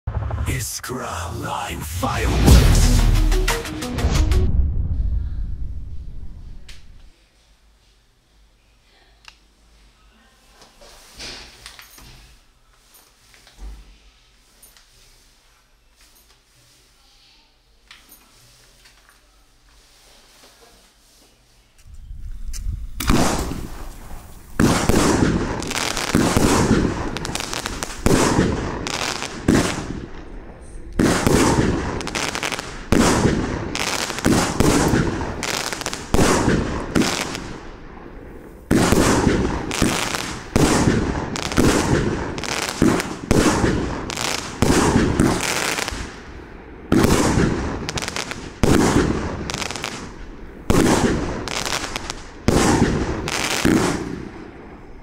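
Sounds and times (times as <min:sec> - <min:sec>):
firework battery shots: 0:23.0 - 0:30.4, 0:31.0 - 0:46.2, 0:46.9 - 0:54.4.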